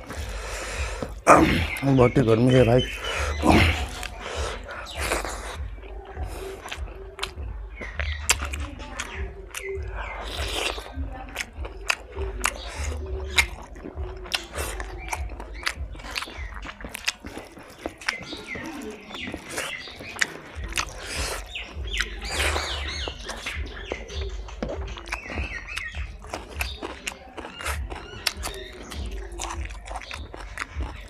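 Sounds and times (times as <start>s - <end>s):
birds chirping: 0.0s - 31.0s
wet chewing and lip smacks: 0.0s - 31.0s.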